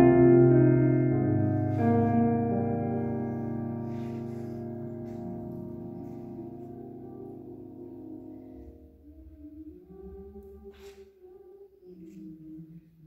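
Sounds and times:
electric keyboard chord: 0:00.0 - 0:09.0.

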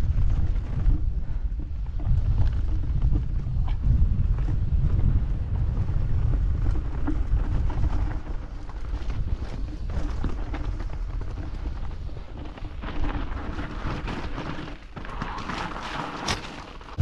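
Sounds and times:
bike rattling: 0:00.0 - 0:17.0
wind rumble on microphone: 0:00.0 - 0:17.0
tyres rolling over loose stones: 0:04.6 - 0:17.0.

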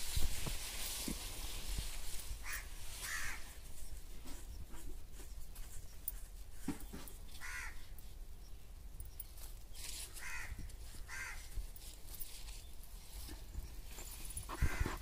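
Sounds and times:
rustling of plastic bag: 0:00.0 - 0:04.2
crow cawing: 0:02.4 - 0:03.5, 0:07.4 - 0:07.9, 0:10.1 - 0:11.5, 0:14.5 - 0:15.0.

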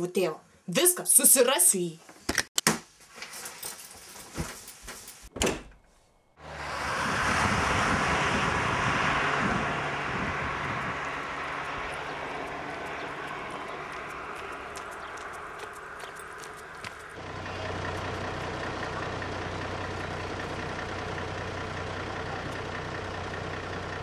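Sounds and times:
clothes rustling: 0:03.0 - 0:05.3
rushing outdoor noise: 0:06.4 - 0:17.2.

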